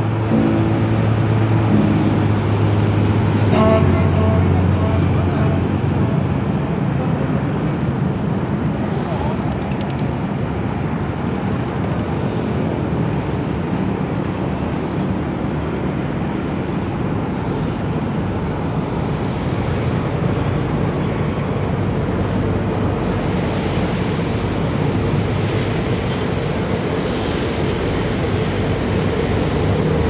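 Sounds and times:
engine rumble: 0.0 - 13.3.

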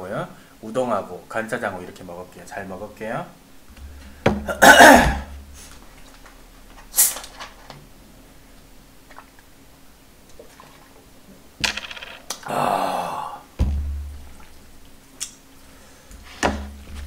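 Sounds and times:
soda bottle opening hiss: 6.9 - 7.4
person exhaling ahh: 12.4 - 13.6
bottle knocking down on surface: 13.6 - 14.3.

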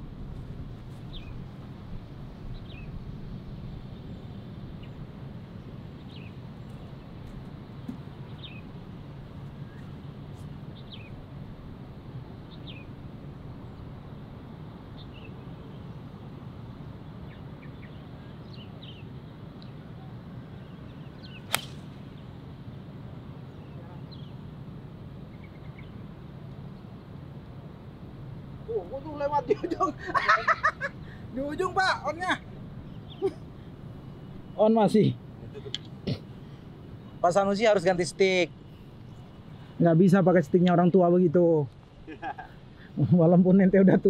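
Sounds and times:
birds chirping: 0.8 - 44.0
golf club striking ball: 21.4 - 22.0.

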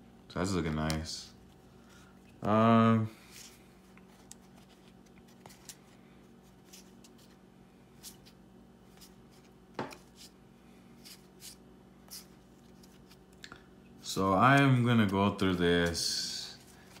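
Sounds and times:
cards rustling and clicking: 3.2 - 7.4, 11.0 - 13.5, 14.3 - 17.0.

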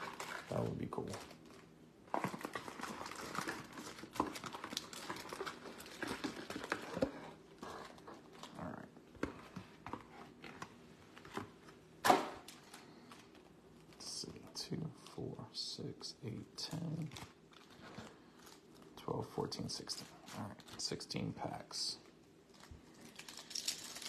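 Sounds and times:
foil packs rustling: 0.0 - 8.6, 22.5 - 24.0
plastic wrap crinkling: 0.0 - 8.8, 16.7 - 19.0, 22.0 - 24.0.

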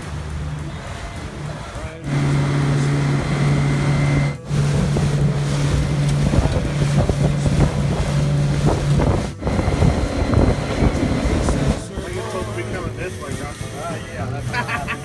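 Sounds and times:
outboard motor droning: 0.0 - 15.0
rushing water: 0.0 - 15.0
wind buffeting microphone: 2.1 - 13.8.

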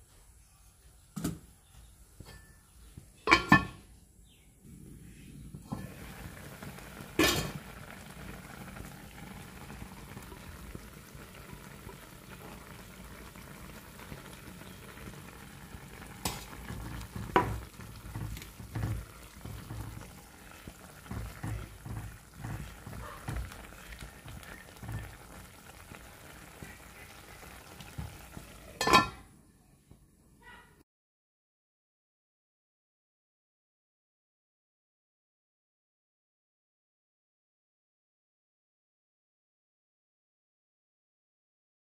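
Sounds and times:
steel lid clanking: 3.3 - 3.8, 7.2 - 7.6, 28.8 - 29.3
curry bubbling and sizzling: 4.8 - 29.3.

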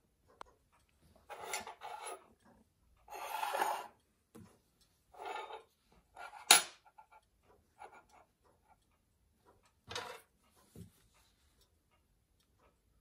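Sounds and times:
metal rubbing and scraping: 1.3 - 2.2, 3.1 - 3.9.

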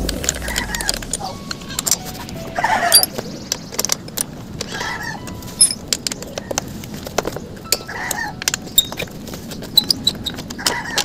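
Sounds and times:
metallic clicks of bolts handled: 5.6 - 6.2.

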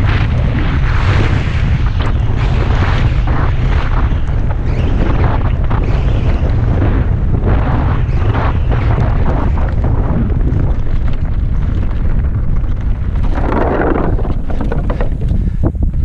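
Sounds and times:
wind buffeting microphone: 0.0 - 16.0
bike rattling over rocks: 8.9 - 16.0
tyres rolling over gravel: 10.2 - 15.7.

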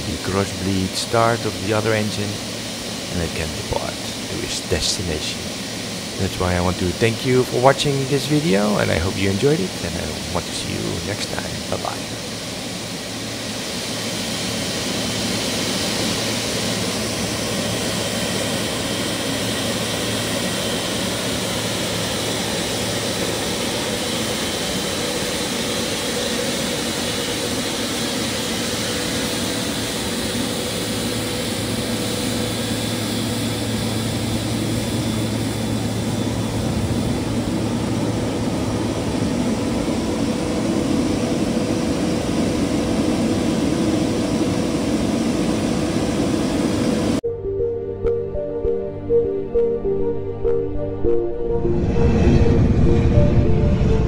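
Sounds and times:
jet engine idling: 0.0 - 47.3, 51.1 - 54.0.

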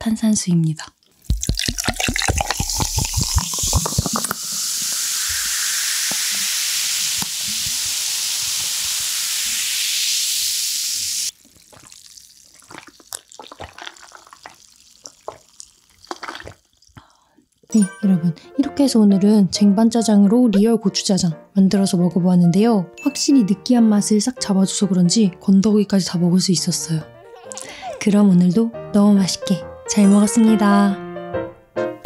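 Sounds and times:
person swallowing drink: 1.2 - 4.6, 11.3 - 17.7, 27.4 - 27.8
carbonation fizzing hiss: 1.2 - 17.0
water glugging into a glass: 1.4 - 6.5, 11.4 - 17.0.

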